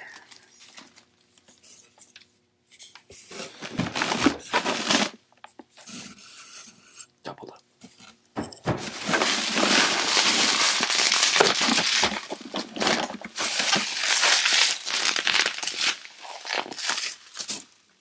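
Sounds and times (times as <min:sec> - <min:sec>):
bubble wrap crinkling: 0:03.3 - 0:05.2, 0:08.8 - 0:17.9.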